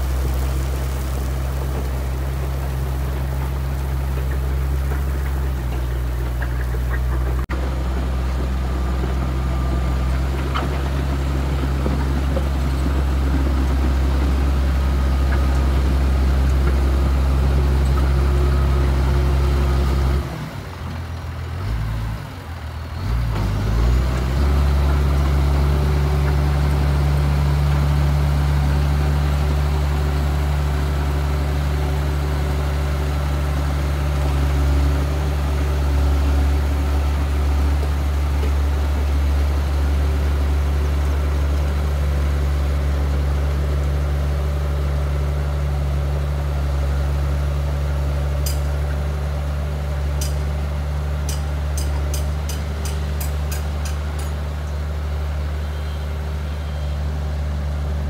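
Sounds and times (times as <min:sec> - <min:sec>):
motor grader engine under load: 0:00.0 - 0:58.0
tanker truck diesel engine: 0:00.0 - 0:58.0.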